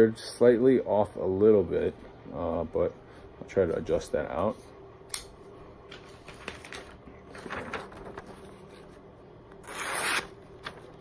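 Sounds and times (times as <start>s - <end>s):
paper rustling: 5.9s - 9.0s, 9.7s - 11.0s.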